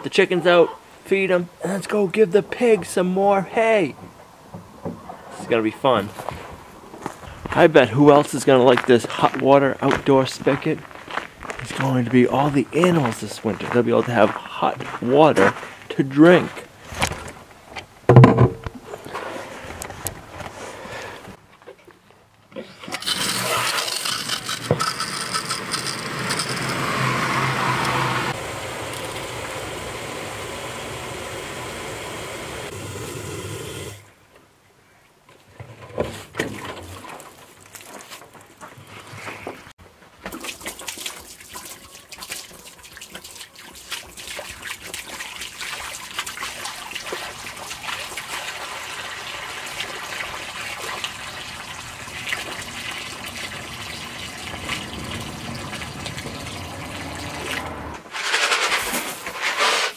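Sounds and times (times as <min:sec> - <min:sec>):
water gushing into plastic jug: 0:22.8 - 0:27.1, 0:40.3 - 0:57.8.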